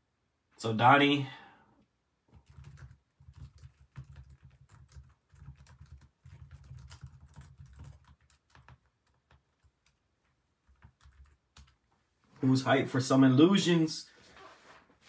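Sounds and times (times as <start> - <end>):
keyboard typing: 2.3 - 11.9.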